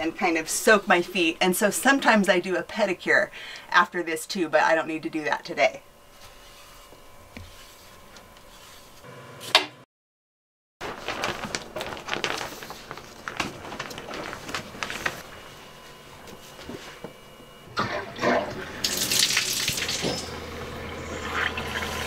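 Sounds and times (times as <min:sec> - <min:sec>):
faint steady hum: 0:00.0 - 0:09.2
plastic shower curtain crinkling: 0:10.8 - 0:16.8.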